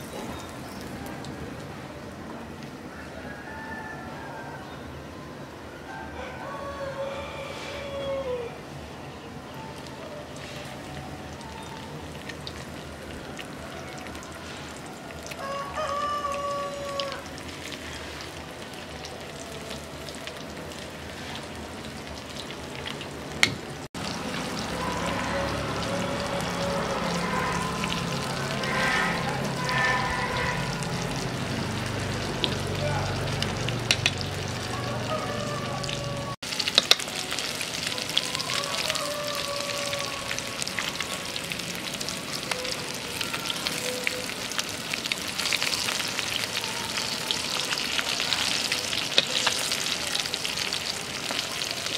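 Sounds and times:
fish sizzling in hot oil: 9.8 - 34.7, 35.8 - 51.9
chopsticks tapping a wok: 36.7 - 37.1.

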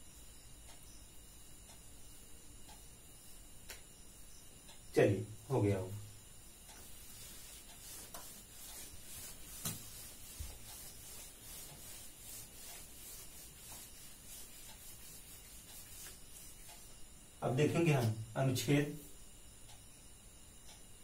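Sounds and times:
light ticks: 0.6 - 1.9, 2.6 - 2.9, 19.6 - 19.9, 20.6 - 20.9
eraser rubbing on whiteboard: 6.7 - 17.0.

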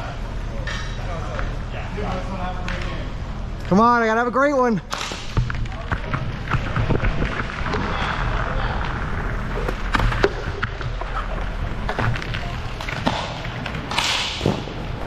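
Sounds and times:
hockey sticks and puck knocking: 5.0 - 7.8, 9.6 - 14.8
skate wheels rumbling: 5.2 - 15.0.

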